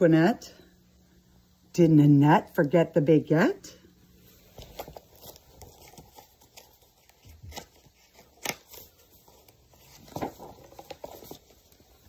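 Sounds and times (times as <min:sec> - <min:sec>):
paper rustling: 0:04.2 - 0:12.0.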